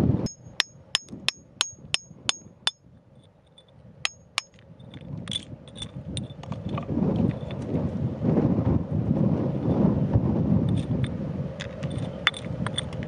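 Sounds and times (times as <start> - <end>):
metal tool striking stony ground: 0.3 - 2.8, 4.1 - 6.6
loose stones clinking: 0.3 - 7.6, 11.6 - 13.0.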